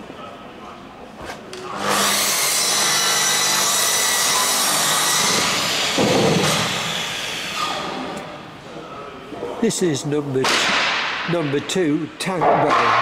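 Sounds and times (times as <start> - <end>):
power tool running: 1.7 - 8.2.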